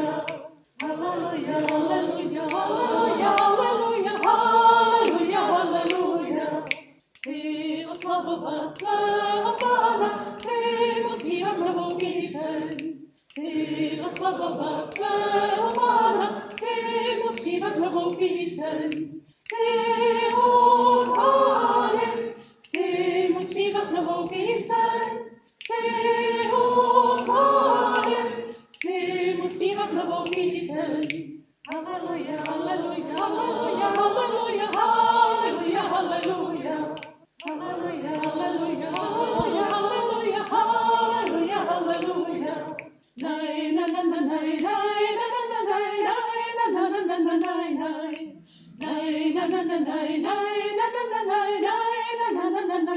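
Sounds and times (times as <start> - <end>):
group singing a hymn unaccompanied: 0.0 - 52.9.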